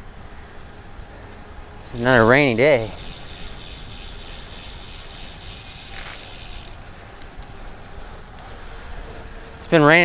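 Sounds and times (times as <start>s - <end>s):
freewheel ticking: 2.8s - 6.8s
bike tyres hissing on wet road: 2.8s - 9.6s.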